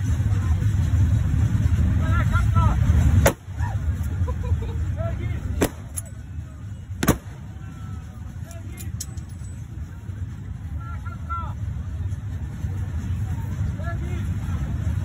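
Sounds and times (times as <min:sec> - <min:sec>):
heavy low rumble: 0:00.0 - 0:15.0
rifle shots: 0:05.6 - 0:06.0, 0:07.0 - 0:07.4.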